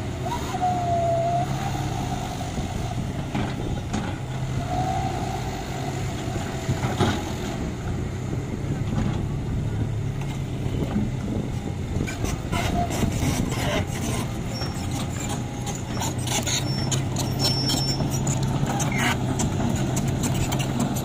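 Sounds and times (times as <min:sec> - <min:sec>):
diesel engines humming: 0:00.0 - 0:21.0
high squeaks: 0:12.1 - 0:21.0.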